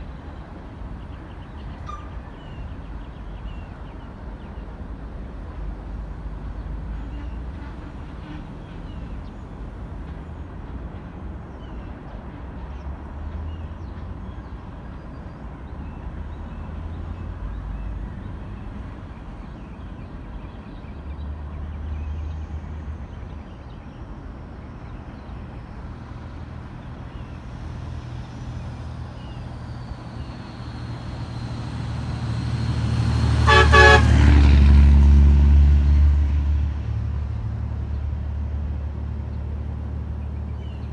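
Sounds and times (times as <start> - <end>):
passing vehicle rumble: 0.0 - 40.9
horn toot: 33.4 - 34.5.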